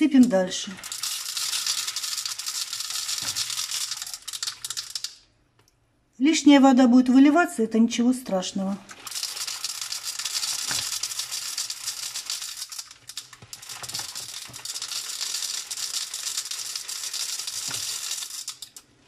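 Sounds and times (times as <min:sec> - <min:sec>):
salt crystals pouring rattle: 0:00.6 - 0:05.2, 0:08.9 - 0:18.8.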